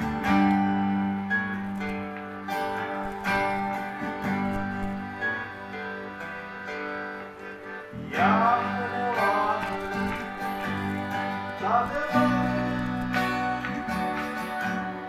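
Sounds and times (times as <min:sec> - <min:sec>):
acoustic guitar strumming: 0:00.0 - 0:15.0
bass: 0:00.0 - 0:15.0
harmonium: 0:00.0 - 0:15.0
man singing: 0:07.9 - 0:13.5.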